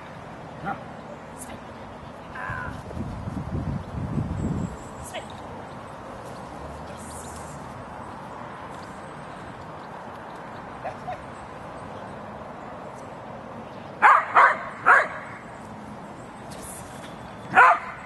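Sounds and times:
dog barking: 14.0 - 15.2, 17.5 - 18.0.

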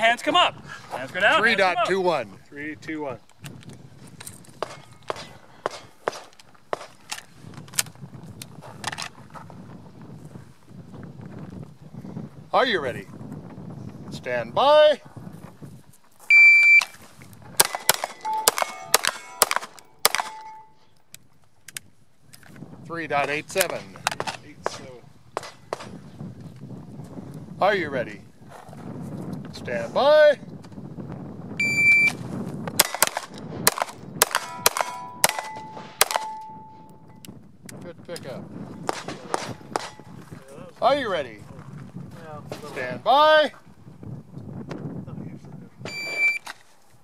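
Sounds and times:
pistol shots: 4.6 - 7.0, 17.6 - 20.7, 23.6 - 26.0, 32.8 - 36.7, 38.8 - 40.2
shot timer beep: 16.3 - 16.9, 18.2 - 19.0, 31.6 - 32.2, 45.9 - 46.4
steel targets ringing: 17.6 - 20.8, 34.2 - 37.1.

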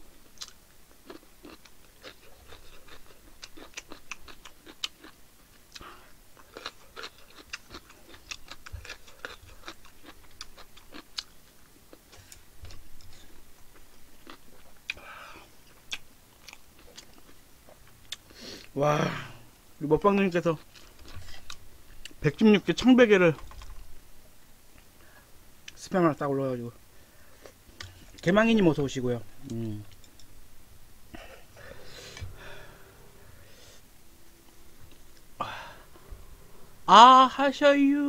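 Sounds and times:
person chewing food: 0.2 - 18.8, 20.6 - 22.2.

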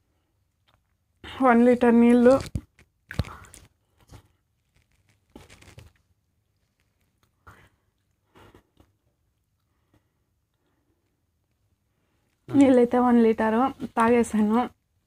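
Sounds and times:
plastic water bottle crackling: 2.1 - 7.3.

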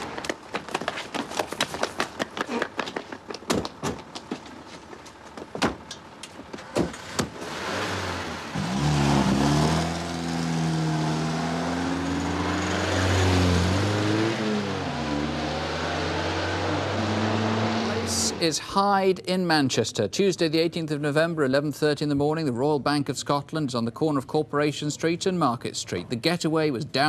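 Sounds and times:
car doors slamming: 6.6 - 7.4
car engine revving and pulling away: 6.9 - 18.5.

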